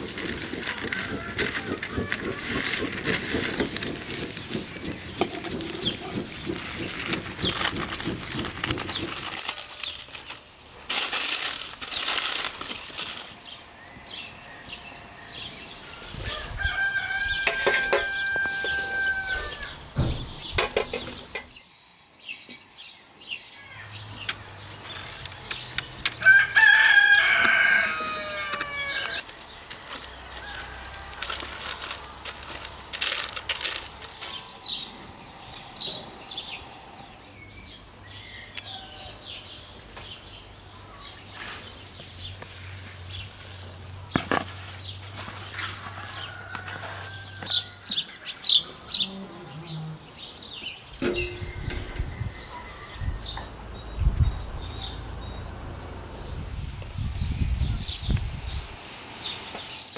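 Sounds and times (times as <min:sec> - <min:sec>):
rustling: 0:00.0 - 0:13.4, 0:28.5 - 0:36.5
rooster crowing: 0:16.2 - 0:19.8, 0:26.2 - 0:29.2, 0:45.8 - 0:48.1.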